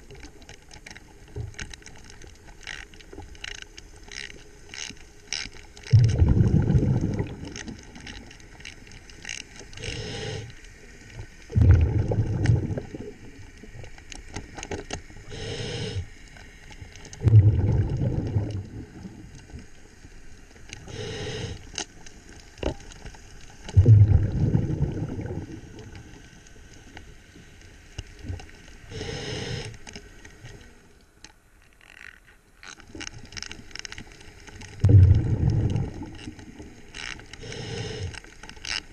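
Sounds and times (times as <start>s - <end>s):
faint clicks: 0.0s - 6.2s
exhaled bubbles rumbling underwater: 5.9s - 8.2s, 11.1s - 14.0s, 17.1s - 19.8s, 23.6s - 26.3s, 34.6s - 38.2s
regulator inhale hiss: 9.7s - 10.8s, 15.2s - 16.7s, 20.8s - 21.8s, 28.8s - 29.9s, 37.3s - 38.4s.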